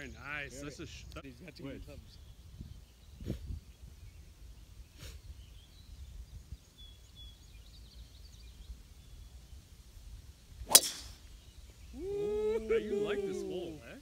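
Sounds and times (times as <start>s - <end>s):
golf driver striking ball: 10.7s - 11.3s.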